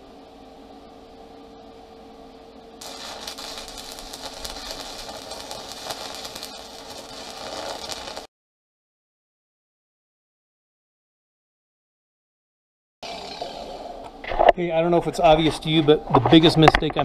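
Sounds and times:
faint steady hum: 0.0 - 8.3
welding arc crackling: 2.8 - 8.3.

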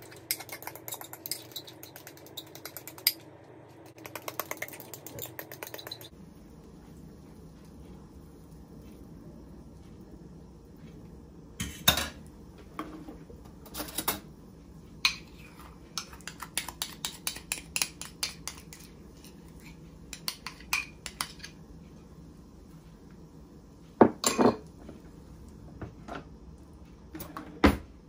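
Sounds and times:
cookware clinking and knocking: 24.0 - 24.6.

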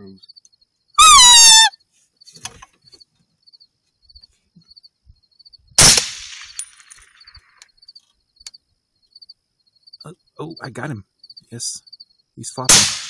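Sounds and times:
insect chirping: 0.0 - 12.7
rifle shot: 5.8 - 6.8, 12.7 - 13.0.

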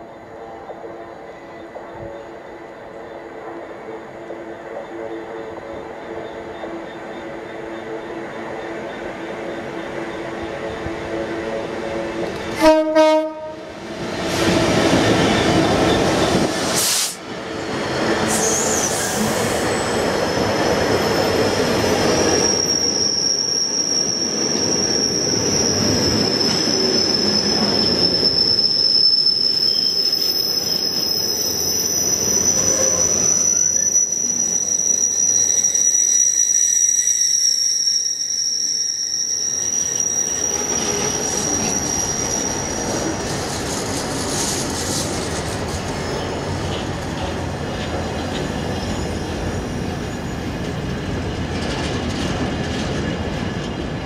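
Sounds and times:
diesel locomotive passing: 0.0 - 37.3, 39.2 - 54.0
loud train horn blast: 12.5 - 13.7
high-pitched wheel squeal: 18.3 - 43.5.

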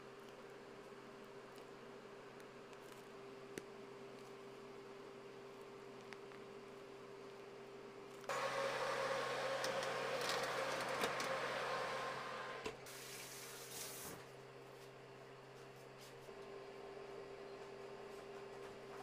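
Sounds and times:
oven fan whirring: 8.2 - 14.9.

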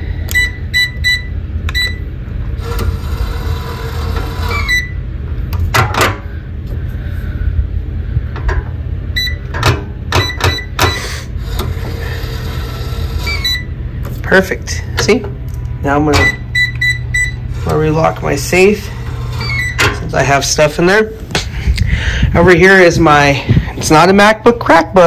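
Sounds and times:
keypad beeps: 0.3 - 2.0, 9.2 - 9.5, 10.2 - 11.1, 16.2 - 17.4
safe motor whirring: 2.6 - 4.9, 11.0 - 13.7.

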